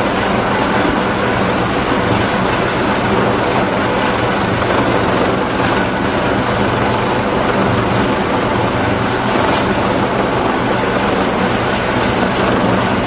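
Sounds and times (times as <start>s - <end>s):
helicopter hovering overhead: 0.0s - 13.0s.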